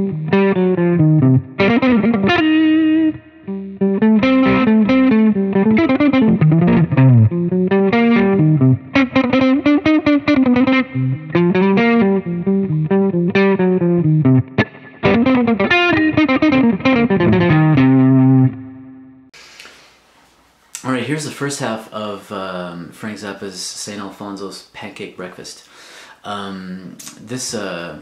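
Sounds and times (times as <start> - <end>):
electric guitar melody: 0.0 - 19.3.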